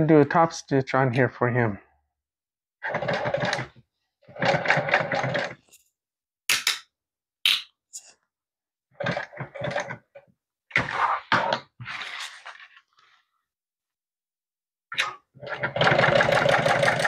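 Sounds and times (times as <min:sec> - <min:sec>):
sewing machine stitching: 0:02.8 - 0:05.6, 0:08.9 - 0:10.1, 0:15.4 - 0:17.0.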